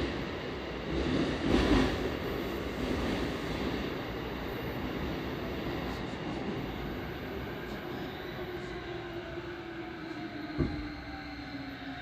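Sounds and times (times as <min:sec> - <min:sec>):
train wheels rumbling on rails: 0:00.0 - 0:05.1
train motor whine: 0:00.0 - 0:12.0.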